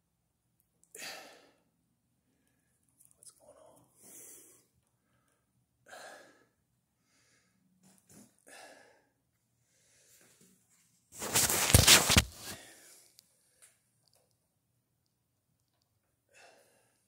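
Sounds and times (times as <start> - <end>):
phone handling rustle: 11.2 - 12.6.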